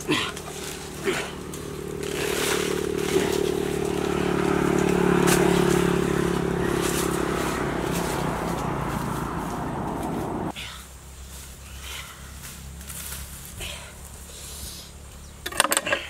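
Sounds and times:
leaves and branches snapping: 0.0s - 10.4s
engine running steadily: 0.0s - 16.0s.

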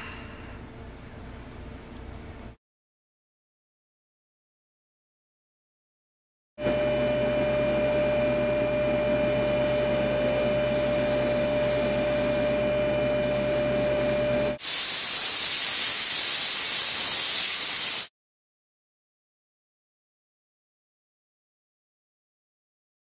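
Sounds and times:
steam cleaner hissing: 14.6s - 18.1s.

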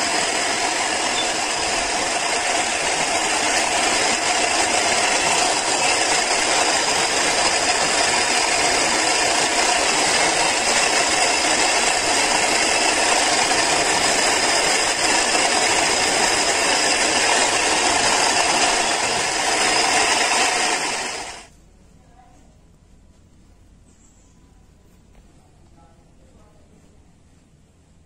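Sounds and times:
buffing wheel motor running: 0.0s - 21.5s.

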